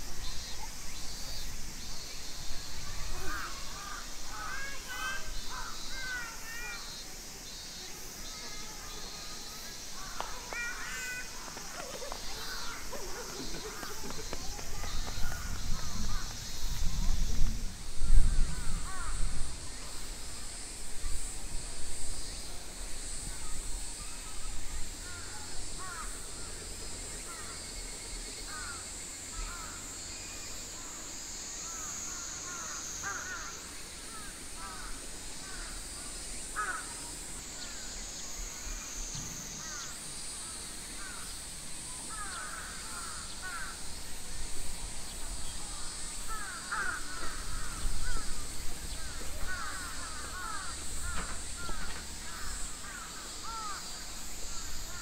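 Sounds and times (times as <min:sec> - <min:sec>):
birds chirping: 0:00.0 - 0:20.1, 0:44.8 - 0:55.0
cicada drone: 0:00.0 - 0:55.0
faint distant voices: 0:00.0 - 0:55.0.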